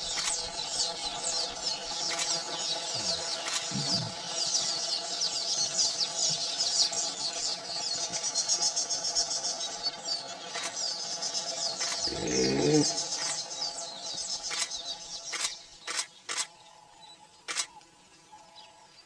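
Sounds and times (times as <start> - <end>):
insects and birds chirring: 0.0 - 19.0
sharp clicks: 0.1 - 0.4, 3.4 - 3.9, 11.8 - 12.4, 14.5 - 16.5, 17.5 - 17.8
low moaning call: 3.0 - 4.2, 12.0 - 13.1.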